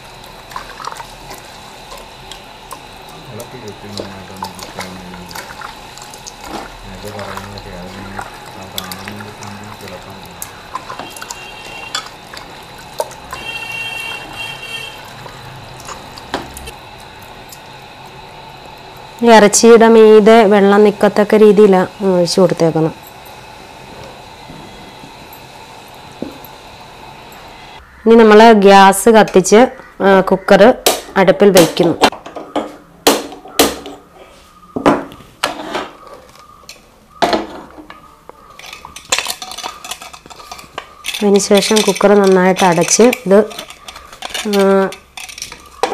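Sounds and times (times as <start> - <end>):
pot clanking on metal grate: 36.6 - 45.9.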